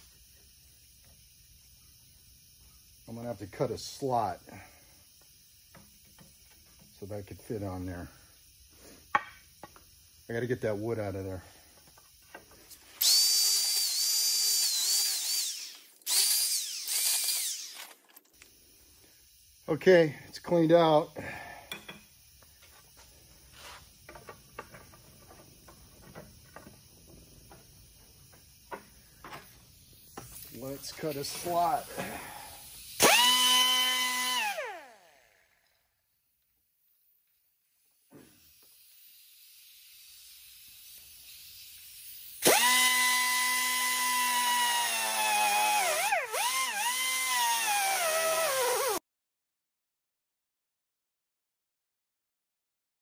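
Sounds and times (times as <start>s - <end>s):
rotary cutting tool whining: 12.8s - 18.5s, 30.1s - 35.6s, 42.4s - 49.0s
tools clicking and knocking: 21.7s - 22.1s.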